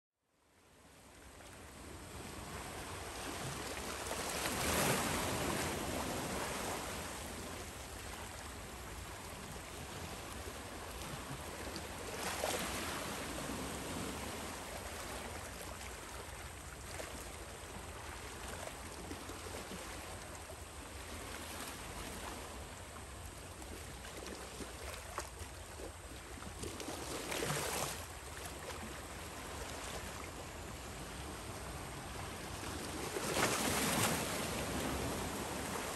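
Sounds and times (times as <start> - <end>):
sea waves washing on breakwater: 26.5 - 35.9.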